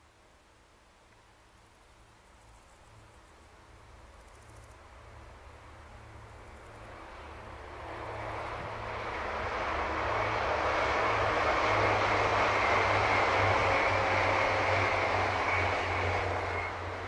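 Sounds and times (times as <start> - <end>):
trains running: 5.5 - 17.0
thin high whine: 8.2 - 17.0.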